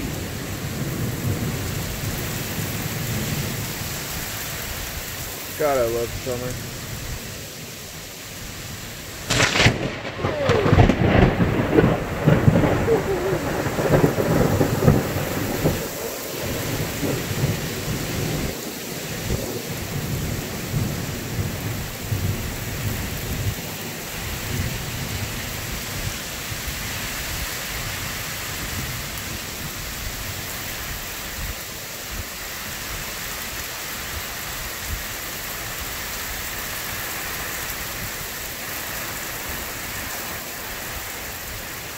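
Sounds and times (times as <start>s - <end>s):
steady rain: 0.0s - 41.9s
thunderclap: 9.2s - 18.6s.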